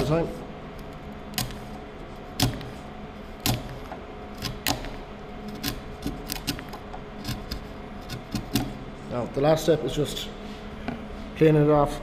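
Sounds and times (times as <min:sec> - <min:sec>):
faint steady hum: 0:00.0 - 0:12.0
chisel cracking wood chips: 0:03.4 - 0:08.8.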